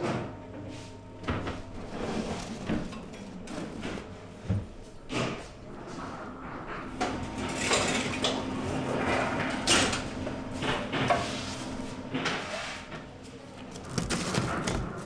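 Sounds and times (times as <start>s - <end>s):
steady low hum: 0.0s - 15.0s
trays and utensils clattering: 1.2s - 4.1s, 6.8s - 11.3s, 12.1s - 15.0s.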